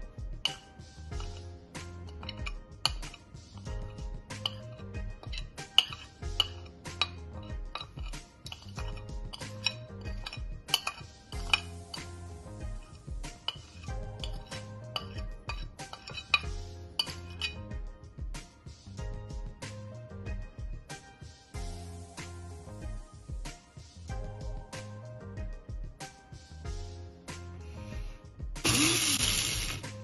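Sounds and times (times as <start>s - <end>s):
background music: 0.0s - 30.0s
metal spoon clinking on plate: 2.1s - 3.7s, 4.3s - 12.1s, 13.4s - 17.6s.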